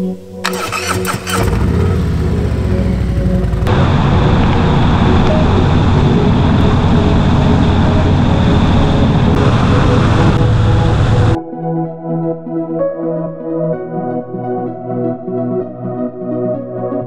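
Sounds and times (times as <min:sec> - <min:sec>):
motorcycle engine running: 0:00.4 - 0:11.4
road and wind noise: 0:00.4 - 0:11.4.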